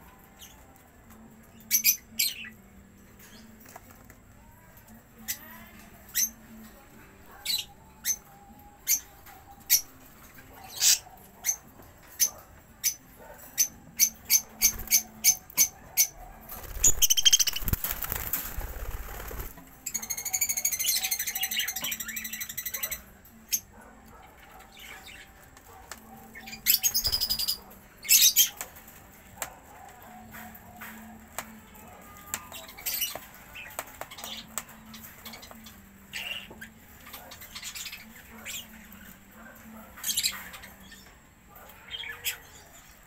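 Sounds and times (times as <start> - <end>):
birds warbling chatter: 1.5 - 2.6, 4.8 - 6.7, 7.3 - 28.9, 29.8 - 43.0
parakeets chirping: 8.8 - 13.0, 13.6 - 23.6, 26.3 - 28.6, 32.6 - 38.8
wings rustling flurry: 16.4 - 19.8.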